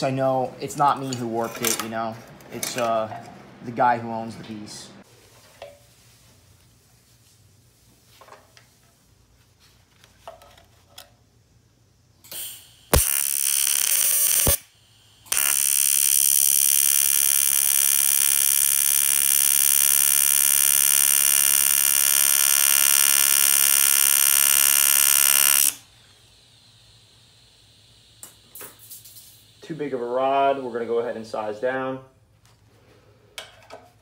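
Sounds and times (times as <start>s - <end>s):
welding arc buzzing: 12.2s - 30.0s.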